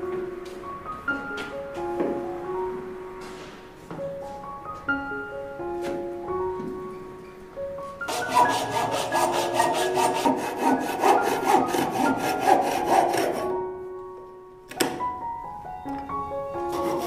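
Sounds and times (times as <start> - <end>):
soft piano music: 0.0 - 17.0
saw cutting dry branch: 8.1 - 13.5.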